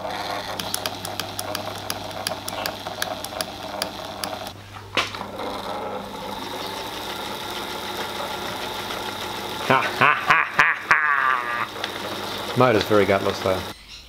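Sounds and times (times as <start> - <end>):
sewing machine motor hum: 0.0 - 13.8
sewing machine mechanism clicking: 0.3 - 4.6, 5.2 - 9.8, 11.6 - 13.7.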